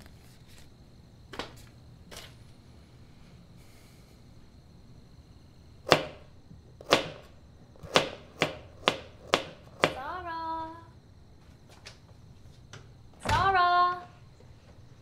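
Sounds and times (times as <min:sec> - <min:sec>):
knife chopping carrots on plastic: 0:06.8 - 0:10.0.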